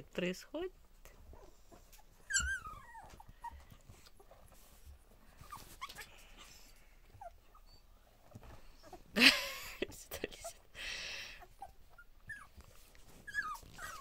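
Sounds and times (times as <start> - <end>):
puppy faint squeaks: 1.4 - 9.0, 11.5 - 14.0
puppy squealing: 2.2 - 3.6, 13.2 - 14.0.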